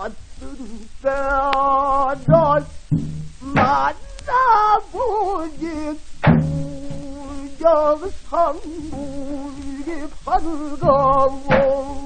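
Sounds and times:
solo voice singing with vibrato: 0.0s - 12.0s
barrel drum strokes: 2.3s - 4.0s, 6.2s - 7.4s.

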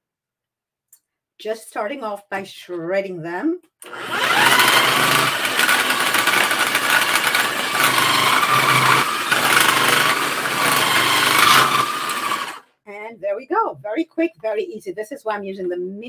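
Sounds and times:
food processor motor whine: 3.8s - 12.6s.

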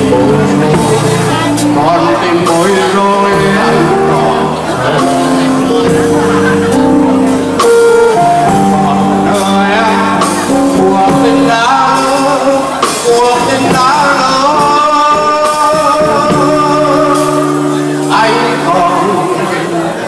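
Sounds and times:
man singing into microphone: 0.0s - 6.9s, 7.6s - 20.0s
backing music: 0.0s - 20.0s.

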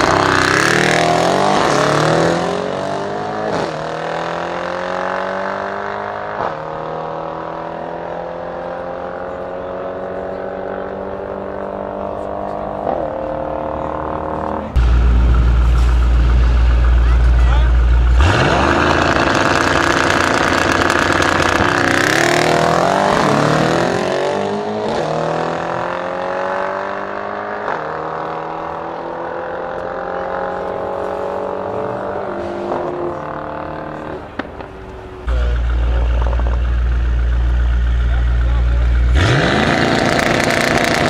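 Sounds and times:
car engines revving at full throttle: 0.0s - 41.0s
car engines idling: 7.7s - 24.0s, 28.1s - 41.0s.

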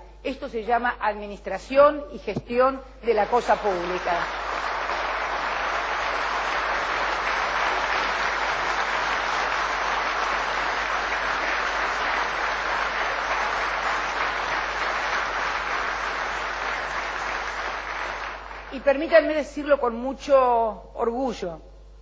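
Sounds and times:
audience applauding: 3.2s - 18.8s.

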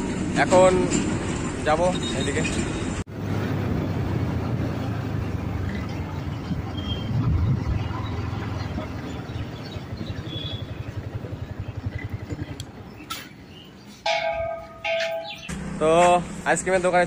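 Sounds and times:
motorcycle engine running: 3.2s - 17.0s
wind rush: 6.2s - 12.5s.

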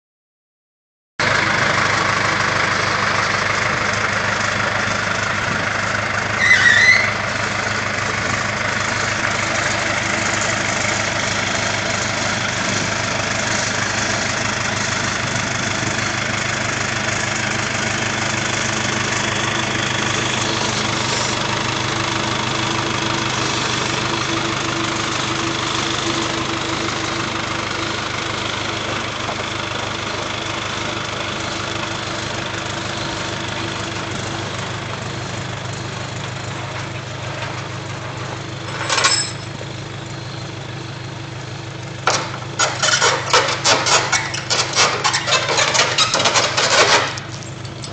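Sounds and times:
diesel engine idling: 1.2s - 47.9s
high rising squeal: 6.4s - 7.4s.

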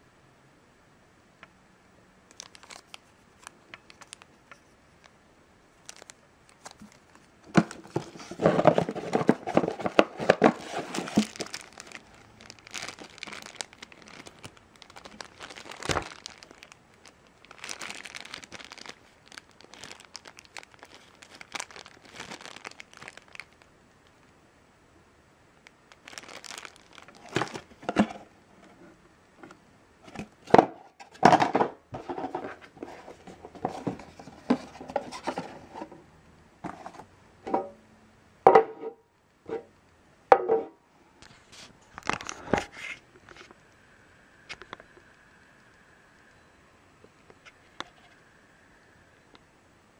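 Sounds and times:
plastic bags crinkling: 2.3s - 4.3s, 5.8s - 23.7s, 25.9s - 28.3s, 30.0s - 35.9s, 41.9s - 42.5s.

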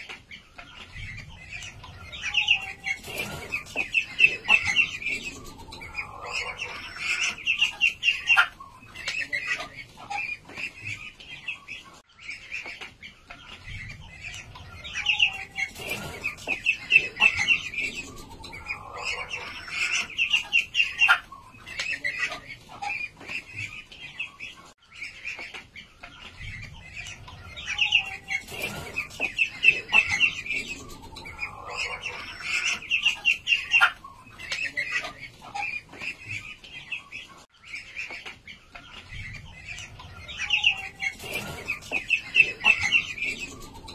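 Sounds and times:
ducklings peeping: 0.0s - 43.9s.

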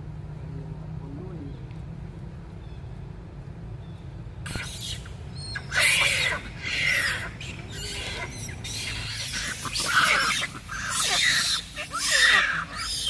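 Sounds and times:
steady low rumble: 0.0s - 10.9s
monkeys squealing and screaming: 4.5s - 13.0s.

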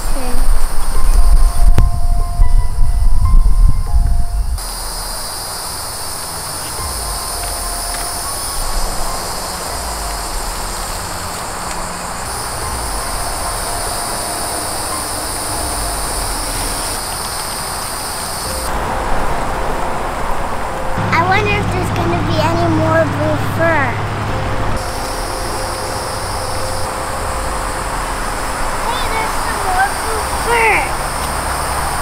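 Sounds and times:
low rumble: 0.0s - 31.2s
shrill insect chorus: 4.5s - 20.8s, 24.8s - 32.0s.

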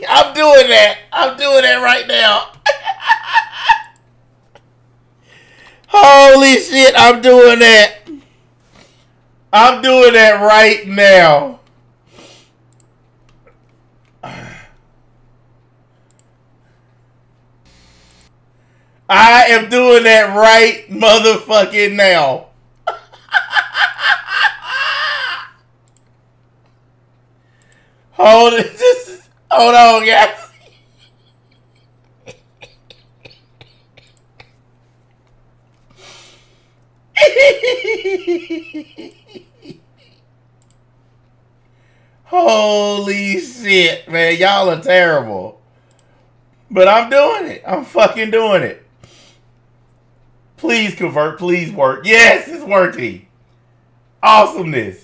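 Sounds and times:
low steady hum: 0.0s - 55.0s
man laughing: 2.2s - 4.7s, 22.8s - 25.6s, 28.4s - 34.6s, 37.2s - 40.3s
breath: 5.2s - 5.9s, 18.5s - 19.0s, 27.4s - 28.1s, 35.9s - 36.8s, 41.7s - 42.2s
man throaty vocal noise: 14.2s - 14.8s
faint clicks: 40.1s - 41.7s, 45.8s - 46.6s.

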